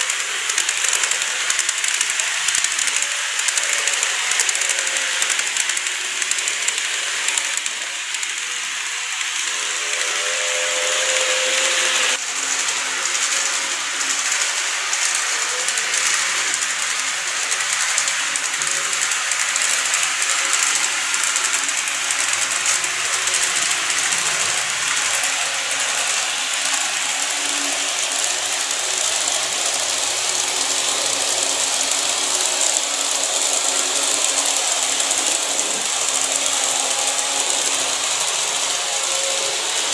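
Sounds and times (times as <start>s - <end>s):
fine rapid clicking: 0.0s - 39.9s
model train motor whirring: 0.0s - 39.9s.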